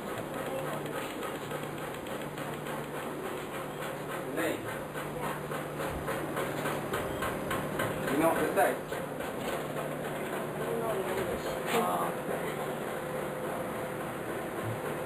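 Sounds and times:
faint regular ticking: 0.0 - 4.2.

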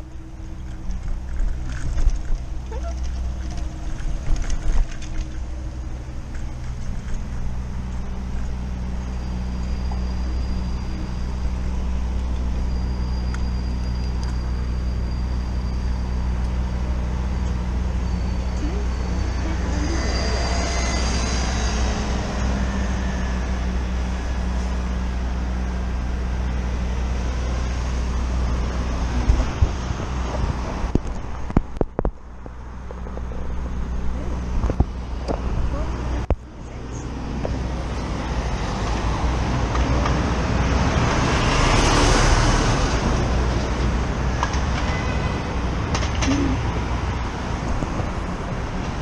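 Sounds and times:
traffic engine hum: 0.0 - 49.0
vehicle passing close: 19.2 - 31.6, 32.6 - 49.0.

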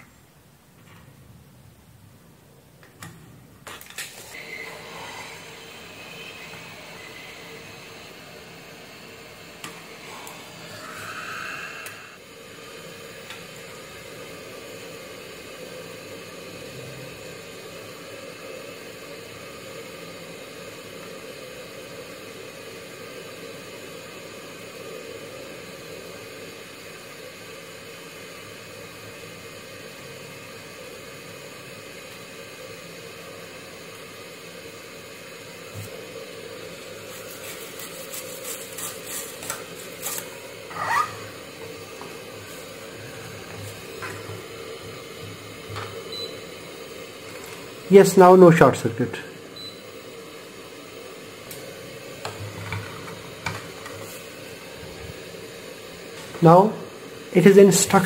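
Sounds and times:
steady hiss: 0.0 - 58.0
brush scrubbing circuit board: 37.0 - 41.2.

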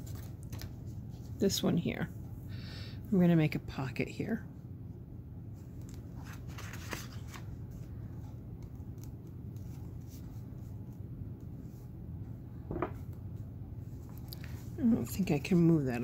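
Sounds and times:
low steady hum: 0.0 - 16.0
paper and lace rustling: 5.6 - 11.8.

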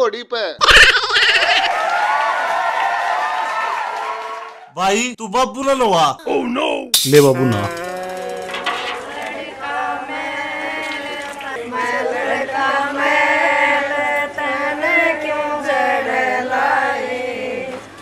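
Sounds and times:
several voices singing a chant: 7.5 - 17.8.

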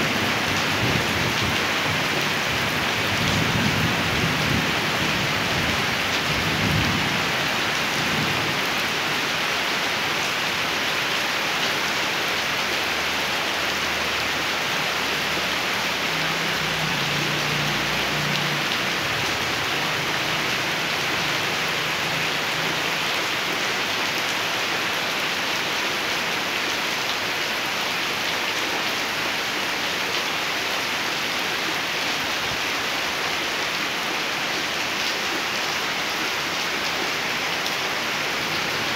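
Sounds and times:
rain on concrete: 0.0 - 38.9.

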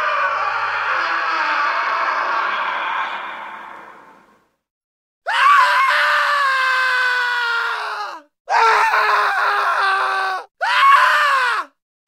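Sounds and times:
man screaming: 5.3 - 11.7.

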